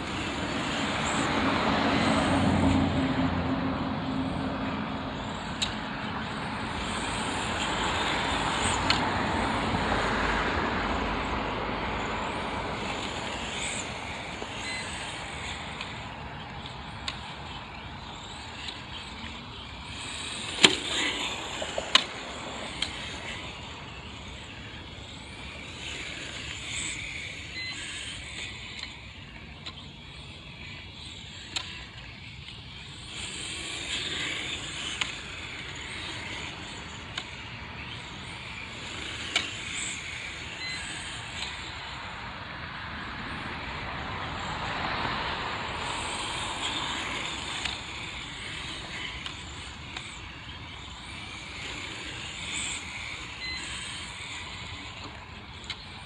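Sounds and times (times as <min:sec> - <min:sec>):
tire hiss on asphalt: 0:00.0 - 0:29.4, 0:30.2 - 0:56.0
rc car motor whine: 0:00.0 - 0:56.0.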